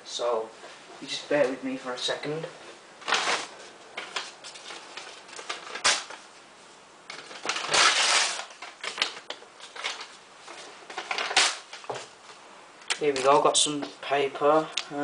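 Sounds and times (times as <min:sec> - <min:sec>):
paper rustling: 0:03.0 - 0:06.3, 0:07.1 - 0:12.2.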